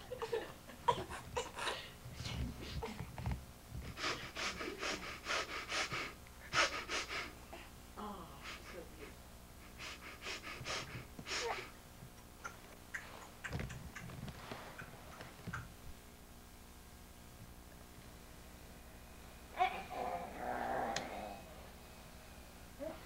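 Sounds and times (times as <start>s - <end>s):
baby panting: 3.8s - 7.4s, 9.7s - 11.7s.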